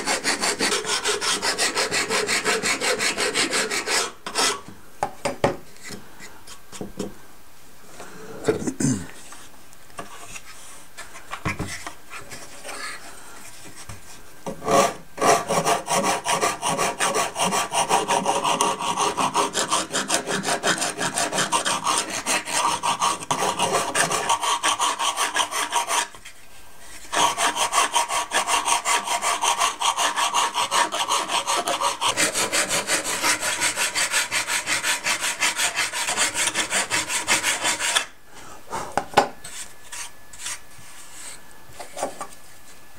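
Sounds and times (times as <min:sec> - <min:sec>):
sanding stick scraping wood: 0:00.0 - 0:04.6, 0:14.6 - 0:26.3, 0:26.9 - 0:38.1.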